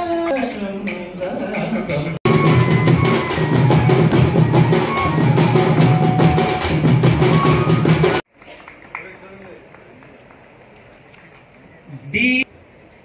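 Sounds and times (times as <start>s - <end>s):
drums beating fast: 0.4s - 8.3s
short high held notes: 2.3s - 8.2s.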